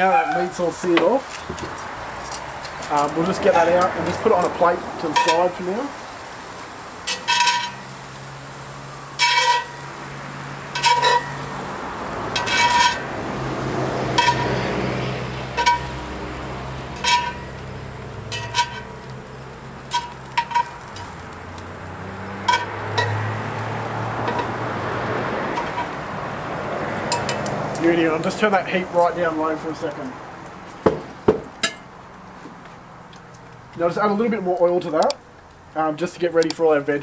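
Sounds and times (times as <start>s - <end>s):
metal tongs clinking on cast iron: 1.0s - 5.7s, 7.0s - 8.0s, 9.2s - 9.9s, 10.7s - 11.6s, 12.3s - 13.1s, 14.1s - 14.7s, 15.5s - 16.2s, 16.9s - 23.6s, 24.2s - 24.6s, 25.6s - 26.0s, 27.0s - 28.5s, 31.6s - 31.9s
soft sizzle from hot pan: 2.9s - 24.6s.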